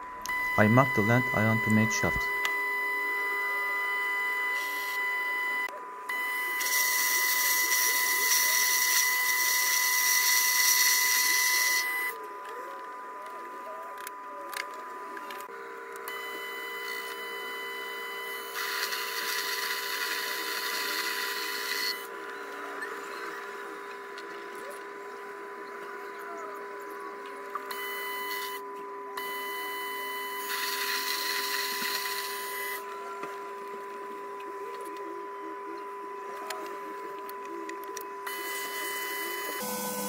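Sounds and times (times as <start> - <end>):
lathe motor whine: 0.0 - 12.2, 38.3 - 40.0.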